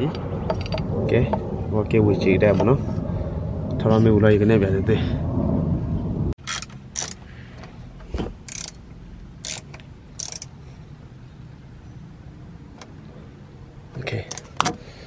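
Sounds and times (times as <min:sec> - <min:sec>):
steady low hum: 0:00.0 - 0:13.9
socket ratchet clicking: 0:06.4 - 0:07.2, 0:08.5 - 0:08.8, 0:09.4 - 0:10.6.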